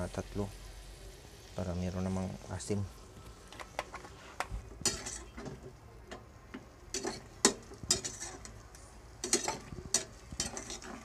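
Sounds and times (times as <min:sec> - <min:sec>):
metal spoon scraping pot: 0:04.8 - 0:05.7, 0:06.9 - 0:08.6, 0:09.2 - 0:11.0
spoon clinking on pot: 0:04.8 - 0:06.2, 0:06.9 - 0:08.6, 0:09.2 - 0:11.0.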